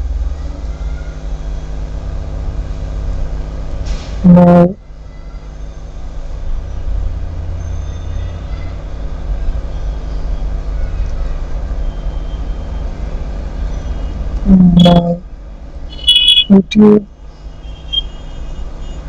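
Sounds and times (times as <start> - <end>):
faint hum: 14.4 - 17.2.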